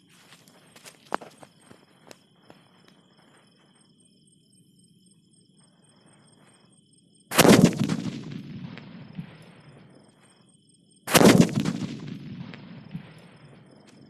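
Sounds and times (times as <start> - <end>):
firecracker bangs with echo: 7.3 - 9.8, 11.1 - 13.7.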